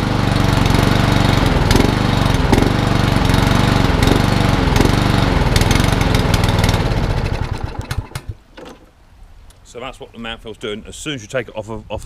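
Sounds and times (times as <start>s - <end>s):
lawnmower engine running: 0.0s - 8.8s.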